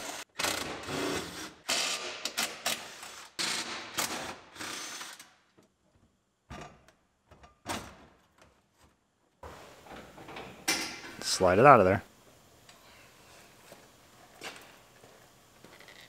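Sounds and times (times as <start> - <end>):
ratchet wrench bursts: 0.0 - 5.3.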